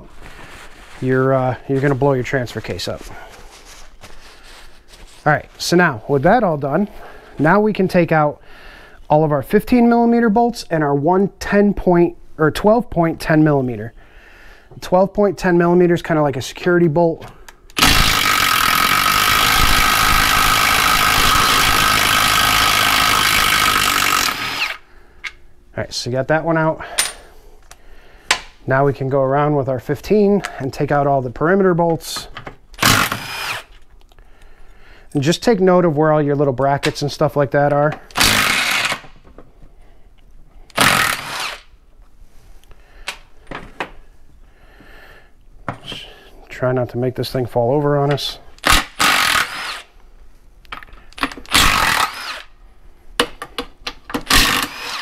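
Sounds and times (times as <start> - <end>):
cordless power tool whining: 17.8 - 24.8, 32.8 - 33.7, 38.2 - 39.0, 40.7 - 41.6, 48.6 - 49.8, 51.5 - 52.5, 54.3 - 55.0
cordless driver spinning bolt: 51.2 - 52.5.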